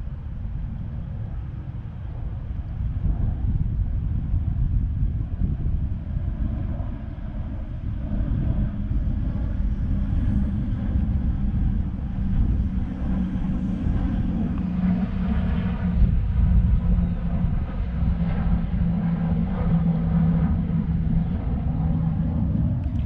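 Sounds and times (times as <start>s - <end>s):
distant engine drone: 0.0s - 23.0s
wind buffeting microphone: 0.0s - 23.0s.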